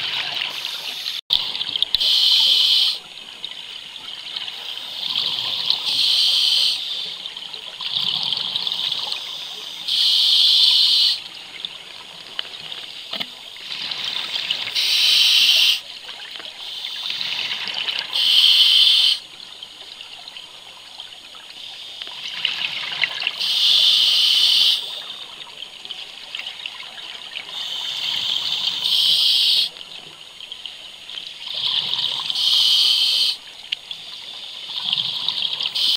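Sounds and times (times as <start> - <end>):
regulator inhale hiss: 0.5 - 1.2, 2.0 - 3.0, 4.7 - 7.2, 9.1 - 11.2, 14.7 - 15.8, 16.6 - 17.4, 18.1 - 19.2, 23.4 - 25.0, 27.5 - 29.7, 32.3 - 33.4.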